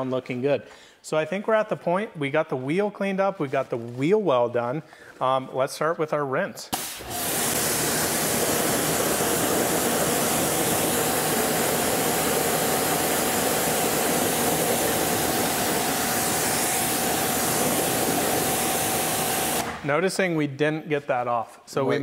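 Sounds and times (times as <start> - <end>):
pressure washer spraying water: 6.7 - 19.8.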